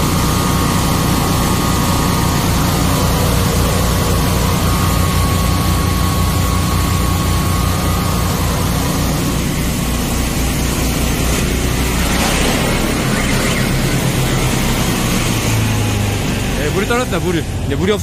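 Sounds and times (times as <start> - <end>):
drain jetter engine drone: 0.0 - 18.0.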